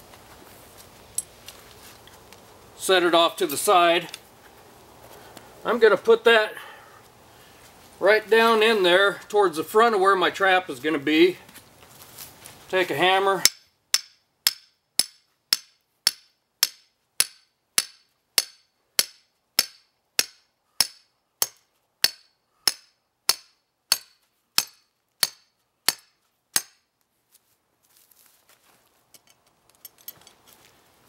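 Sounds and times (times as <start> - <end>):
hammer striking metal stake: 13.4 - 26.9.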